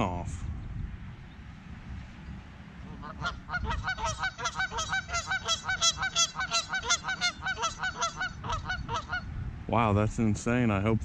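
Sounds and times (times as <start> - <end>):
geese honking: 2.9 - 9.3.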